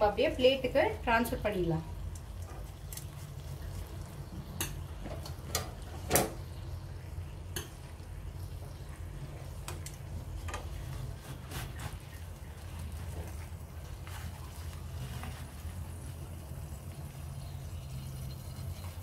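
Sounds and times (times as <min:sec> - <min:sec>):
steady low hum: 0:00.0 - 0:19.0
metal tongs clicking against pan: 0:07.5 - 0:07.8.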